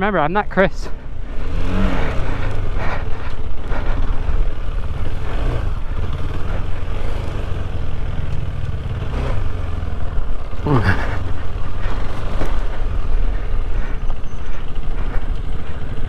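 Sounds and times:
dense low rumble: 0:00.0 - 0:16.0
motorcycle engine running: 0:00.0 - 0:16.0.

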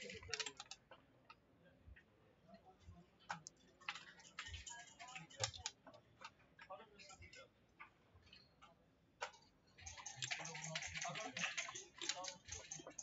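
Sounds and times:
checkers clacking on a board: 0:00.0 - 0:00.8, 0:03.3 - 0:05.8, 0:09.2 - 0:13.0.

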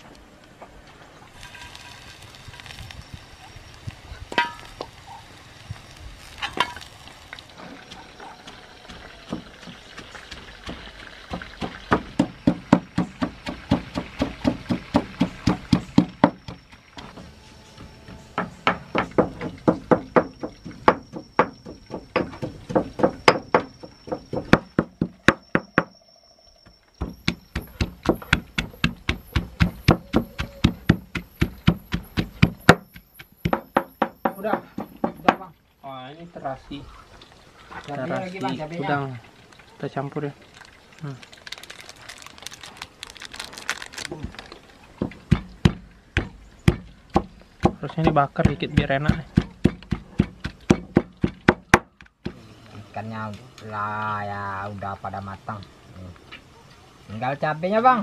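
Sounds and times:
stone pestle pounding in mortar: 0:08.9 - 0:17.1, 0:18.4 - 0:25.9, 0:27.0 - 0:35.4, 0:45.1 - 0:52.4
sharp knocks: 0:10.7 - 0:25.9, 0:45.0 - 0:52.4.

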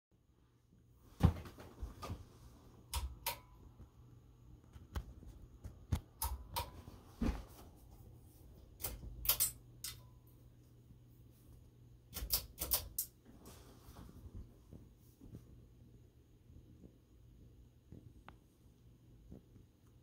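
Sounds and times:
ceiling fan humming: 0:00.2 - 0:20.0
pull-chain switch clicks: 0:08.8 - 0:10.1, 0:12.1 - 0:13.2.

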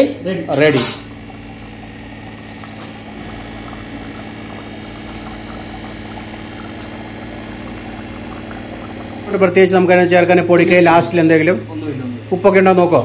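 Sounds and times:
steady low hum: 0:00.0 - 0:13.0
curry simmering and bubbling: 0:01.0 - 0:11.6.

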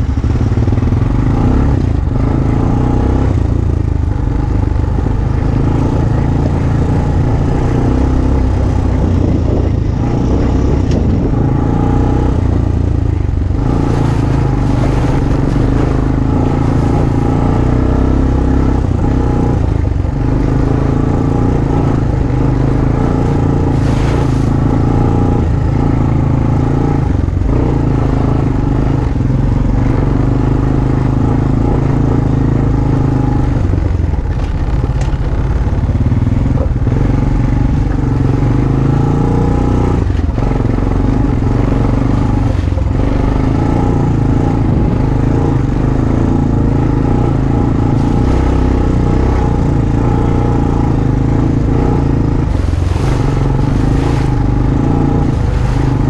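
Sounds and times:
quad bike engine running: 0:00.0 - 0:56.0
rattles and scrapes: 0:05.0 - 0:26.5, 0:33.5 - 0:38.0, 0:40.0 - 0:45.0, 0:51.2 - 0:56.0.

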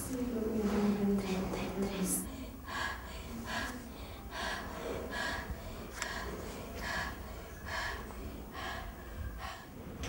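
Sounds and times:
person breathing in and out: 0:02.3 - 0:09.8.

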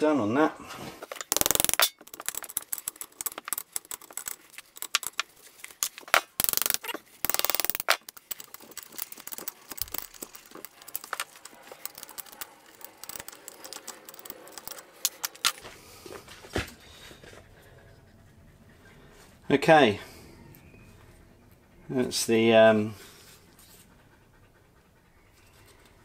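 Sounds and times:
metallic clinks and taps: 0:01.1 - 0:15.6
socket ratchet clicking: 0:01.1 - 0:15.6.

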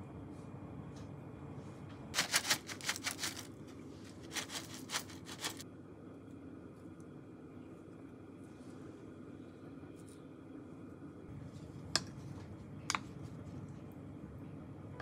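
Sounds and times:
crispy bits pattering onto plates: 0:02.2 - 0:03.5.

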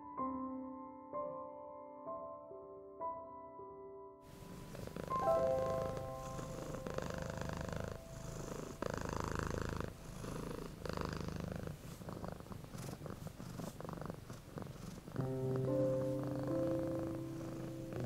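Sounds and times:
cat purring: 0:04.3 - 0:18.0.

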